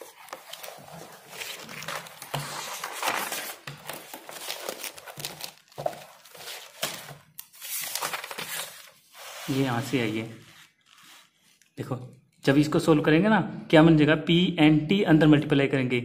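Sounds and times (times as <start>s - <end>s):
notebook pages rustling: 0.0s - 11.6s.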